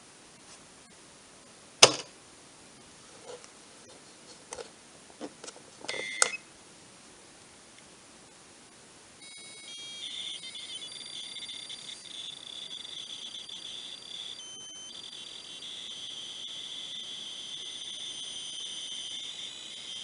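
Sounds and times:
high-pitched electronic tape signal: 0:09.2 - 0:20.0.

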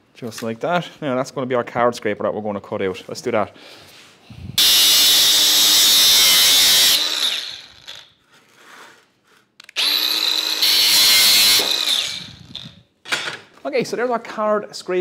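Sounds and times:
angle grinder cutting steel: 0:04.6 - 0:08.1, 0:09.7 - 0:12.8.

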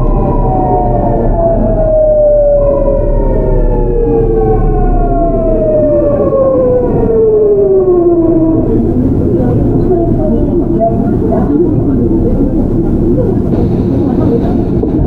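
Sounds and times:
train inverter whine falling in pitch: 0:00.0 - 0:11.3
wheel and rail rumble: 0:00.0 - 0:15.0.

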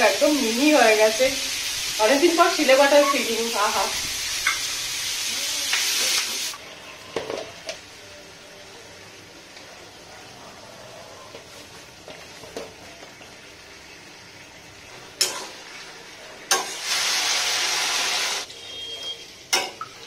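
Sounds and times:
water hissing in hot pan: 0:00.0 - 0:06.7, 0:15.2 - 0:18.5
food frying in hot oil: 0:00.0 - 0:10.0, 0:11.3 - 0:20.0.

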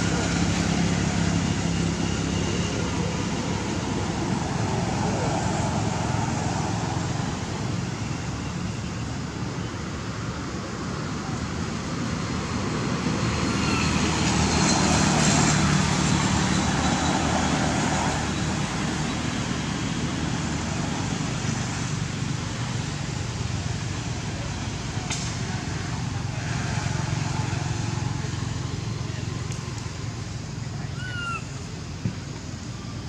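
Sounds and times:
traffic background rumble: 0:00.0 - 0:33.0
motor vehicle passing: 0:12.4 - 0:31.8.

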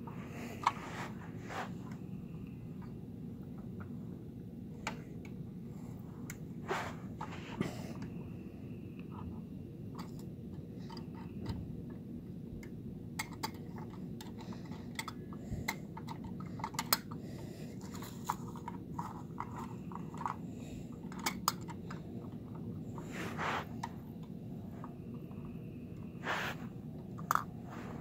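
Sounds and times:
steady low hum: 0:00.0 - 0:28.0
small plastic clicks and taps: 0:12.6 - 0:17.2.

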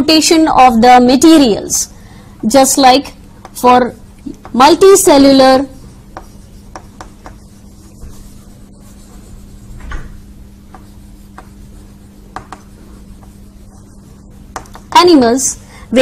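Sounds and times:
chalk tapping on a chalkboard: 0:03.4 - 0:03.6, 0:04.3 - 0:04.8, 0:05.4 - 0:15.2.

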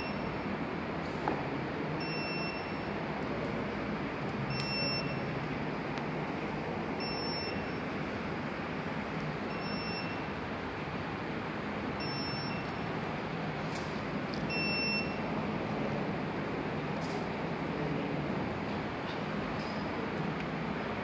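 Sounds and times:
electronic buzzer beeping: 0:02.0 - 0:02.9, 0:04.5 - 0:05.3, 0:07.0 - 0:07.8, 0:09.5 - 0:10.3, 0:12.0 - 0:12.7, 0:14.5 - 0:15.2.

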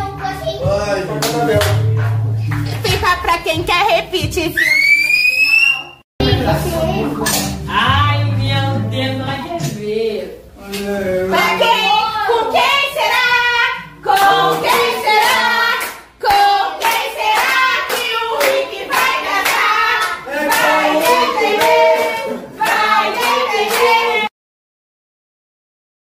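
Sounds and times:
child singing: 0:00.0 - 0:01.1
people clapping in rhythm: 0:01.1 - 0:03.2, 0:12.6 - 0:24.3
group singing a celebration song: 0:10.8 - 0:24.3.

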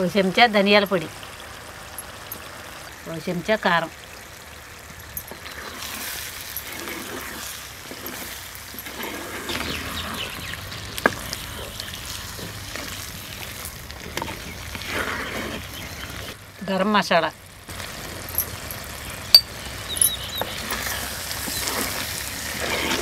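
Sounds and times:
curry sizzling in a pot: 0:00.0 - 0:16.6, 0:17.3 - 0:23.0
wooden spatula stirring and scraping: 0:05.3 - 0:16.4, 0:20.4 - 0:23.0.

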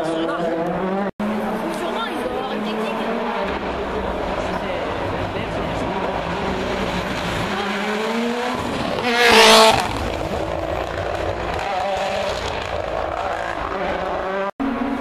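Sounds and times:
distant rally engines revving: 0:00.0 - 0:15.0
rally car engine passing: 0:00.0 - 0:15.0.

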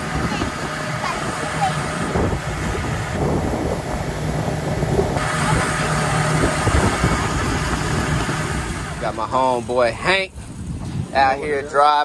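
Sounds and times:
motorboat engine drone: 0:00.0 - 0:11.7
rush of wind and water: 0:00.0 - 0:12.0.

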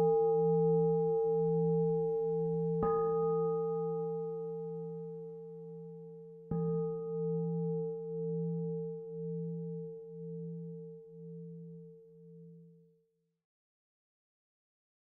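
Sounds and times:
singing bowl ringing: 0:00.0 - 0:12.8.

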